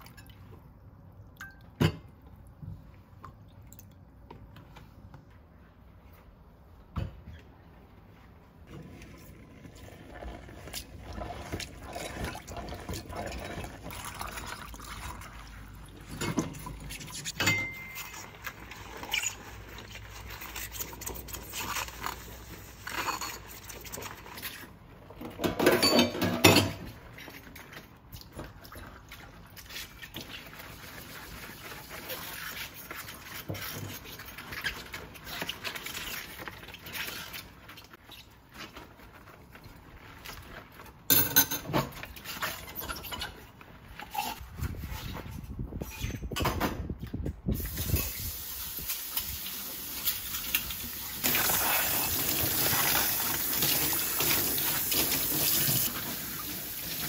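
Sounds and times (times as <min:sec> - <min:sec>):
liquid pouring: 0:08.9 - 0:17.1, 0:47.6 - 0:57.0
knocks and clinks of objects: 0:17.3 - 0:18.3, 0:41.1 - 0:42.0
water running: 0:47.6 - 0:57.0.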